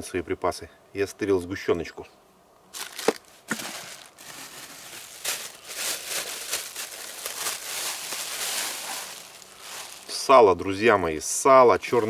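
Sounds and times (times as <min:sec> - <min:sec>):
plastic bag crinkling: 0:02.8 - 0:10.2.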